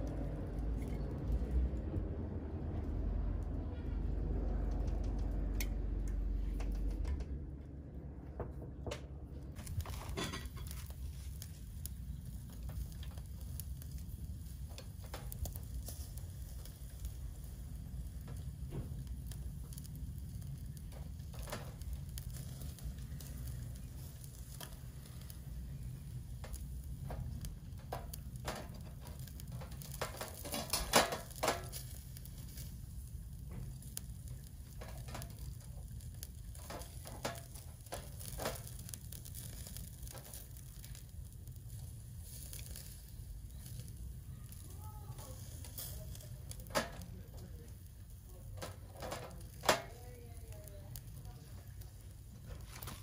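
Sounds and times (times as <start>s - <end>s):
meat sizzling on a grill: 9.6s - 53.0s
metal tongs tapping wire grate: 27.1s - 31.9s, 34.8s - 35.6s, 36.6s - 38.9s, 45.7s - 47.1s, 48.5s - 50.0s.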